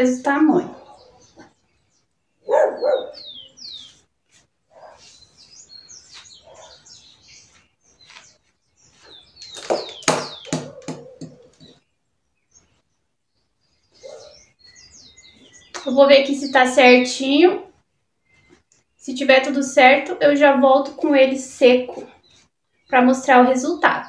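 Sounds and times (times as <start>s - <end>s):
birds chirping: 0.0s - 24.0s
dog barking: 2.4s - 3.3s, 4.7s - 5.1s, 6.4s - 6.9s, 14.0s - 14.4s.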